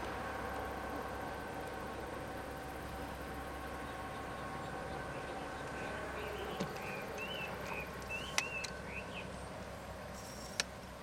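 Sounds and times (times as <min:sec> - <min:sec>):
faint steady hum: 0:00.0 - 0:11.0
bird chirping: 0:03.8 - 0:09.6.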